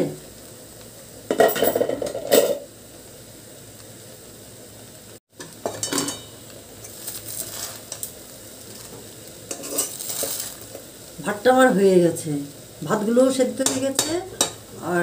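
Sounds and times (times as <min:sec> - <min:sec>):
spatula scraping rice in pan: 0:06.8 - 0:08.1, 0:08.7 - 0:10.7.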